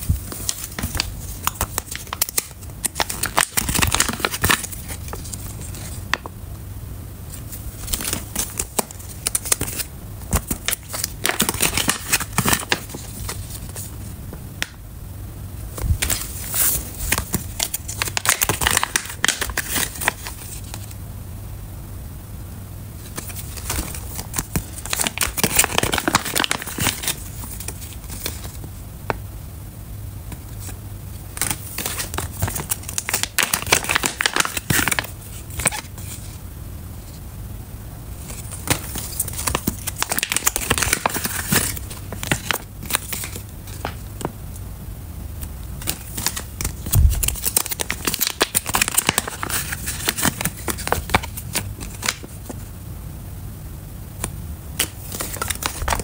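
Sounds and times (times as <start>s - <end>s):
foil pouches crinkling: 0.0s - 6.3s, 7.4s - 13.9s, 15.8s - 20.9s, 23.0s - 28.6s, 30.6s - 36.4s, 38.2s - 44.3s, 45.8s - 52.5s, 54.8s - 56.0s.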